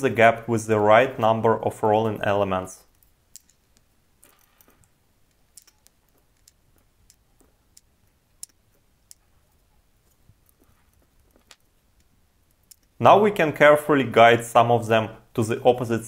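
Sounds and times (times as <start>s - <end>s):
small metal balls clicking: 2.0s - 13.0s.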